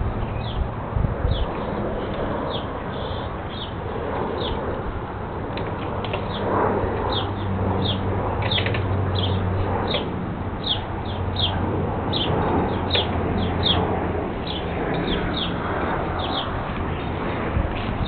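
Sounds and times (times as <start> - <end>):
steady low hum: 0.0 - 18.0
bird chirping: 7.1 - 17.1.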